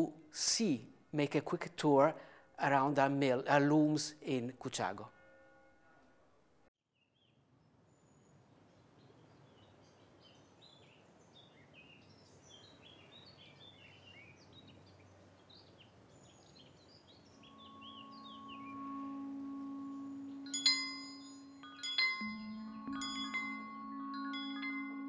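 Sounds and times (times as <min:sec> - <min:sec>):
small birds chirping: 0:07.0 - 0:25.0.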